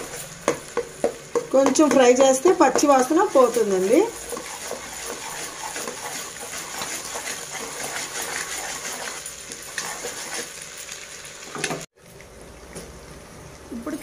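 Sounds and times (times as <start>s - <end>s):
paste sizzling in hot oil: 0.0s - 12.0s
metal skimmer scraping pan: 2.6s - 10.5s.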